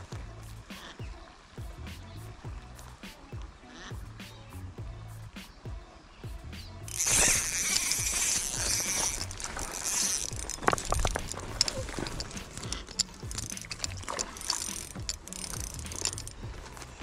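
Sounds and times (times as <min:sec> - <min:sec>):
fish splashing in shallow water: 0:06.9 - 0:17.0
sharp clicks and knocks: 0:06.9 - 0:17.0.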